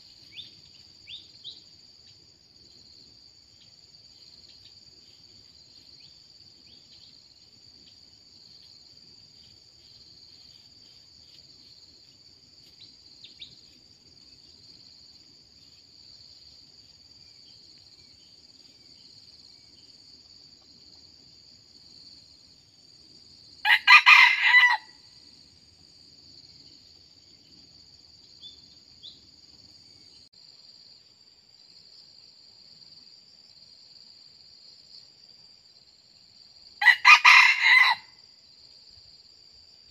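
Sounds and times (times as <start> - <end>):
insects droning: 0.0 - 39.9
rooster crowing: 23.6 - 25.0, 36.8 - 38.2.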